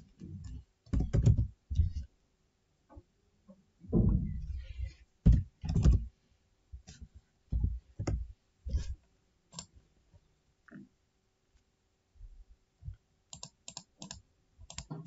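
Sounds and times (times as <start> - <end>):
keyboard keystrokes: 13.4 - 15.0.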